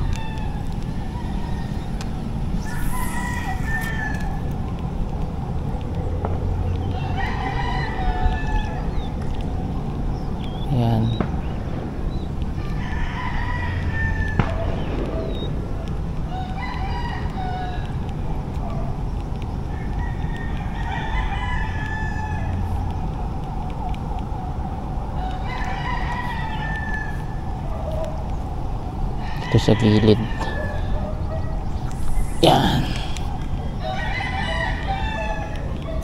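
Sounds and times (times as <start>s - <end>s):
steady low rumble: 0.0s - 20.0s, 30.6s - 36.0s
rooster crowing: 2.6s - 4.5s, 7.0s - 8.8s, 12.6s - 14.4s, 29.2s - 31.4s, 33.8s - 36.0s.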